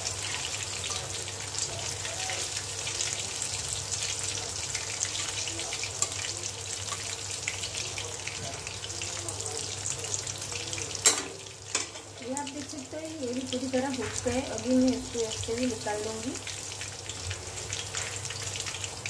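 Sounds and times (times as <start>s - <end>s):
deep-frying sizzle with crackling pops: 0.0s - 19.0s.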